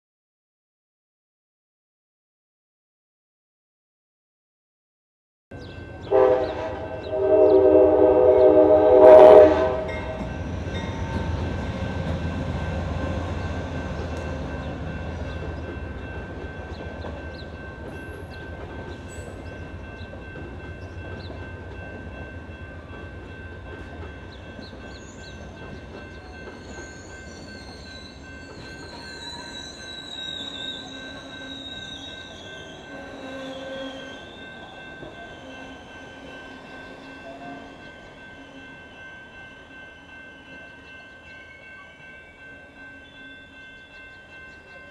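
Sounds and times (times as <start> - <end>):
train cars rumbling past: 5.5 - 44.9
train air horn chord: 6.0 - 10.2, 32.8 - 34.3
faint high wheel squeal: 26.5 - 38.2.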